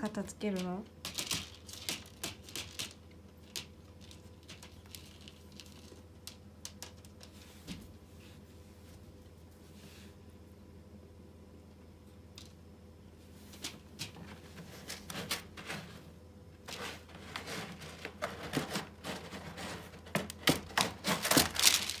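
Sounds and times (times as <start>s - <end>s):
cat scratching in litter box: 14.1s - 22.0s.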